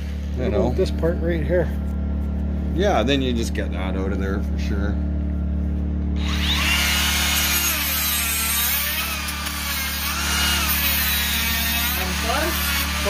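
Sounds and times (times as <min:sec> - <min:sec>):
rotary tool grinding wood: 0:06.2 - 0:13.0.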